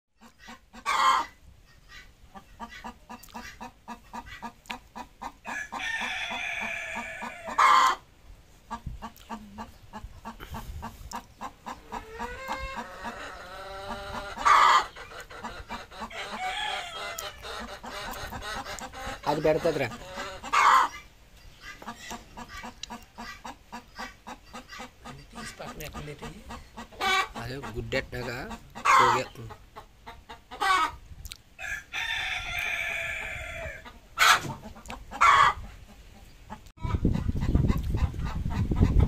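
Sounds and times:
hen long drawn-out calls: 0:00.2 - 0:08.1, 0:08.7 - 0:31.0, 0:31.6 - 0:37.0
hen clucking softly: 0:00.2 - 0:31.0, 0:31.6 - 0:39.0.

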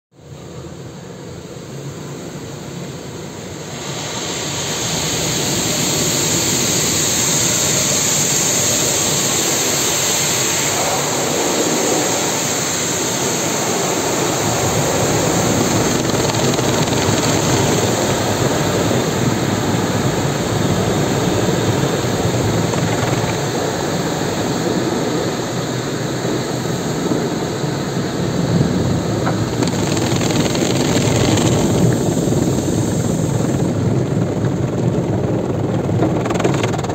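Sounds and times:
low rumble: 0:14.6 - 0:24.5.

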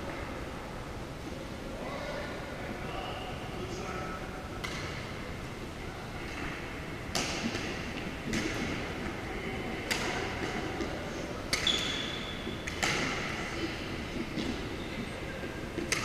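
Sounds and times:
rackets striking shuttlecock: 0:07.1 - 0:08.9, 0:09.8 - 0:13.4, 0:15.7 - 0:16.0.

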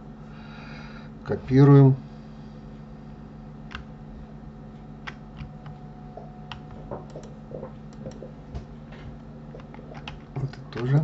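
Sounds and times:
steady low hum: 0:00.0 - 0:11.0
keyboard and mouse clicking: 0:03.7 - 0:03.9, 0:06.5 - 0:08.4, 0:09.6 - 0:10.9.

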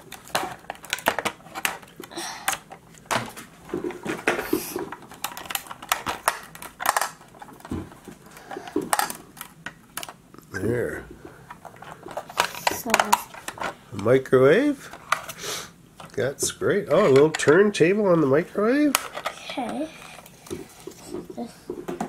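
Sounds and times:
plastic toy clicking and knocking: 0:00.2 - 0:03.3, 0:04.2 - 0:07.8, 0:12.2 - 0:13.7, 0:16.9 - 0:17.6, 0:18.9 - 0:22.0.

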